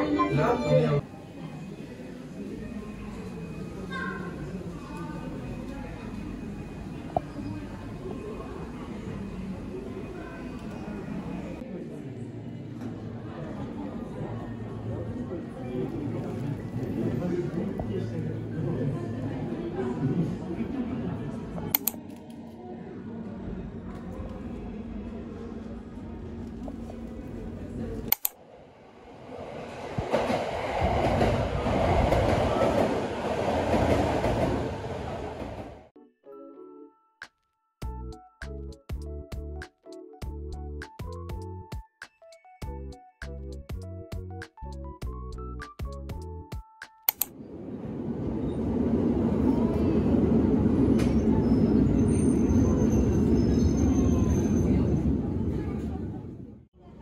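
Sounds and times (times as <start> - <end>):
sharp click: 21.7 - 22.1, 28.1 - 28.4, 47.1 - 47.3
train rumbling on rails: 23.3 - 35.9, 47.4 - 56.6.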